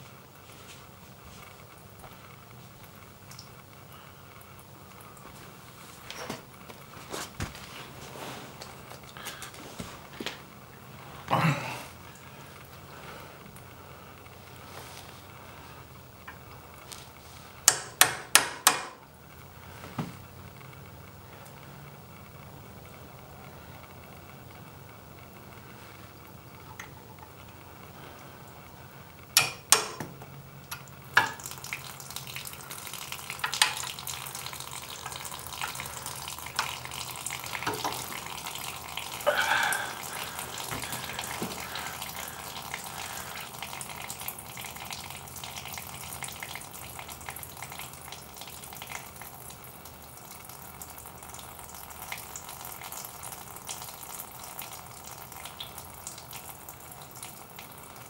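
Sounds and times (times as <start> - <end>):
water draining and splashing: 30.7 - 58.0.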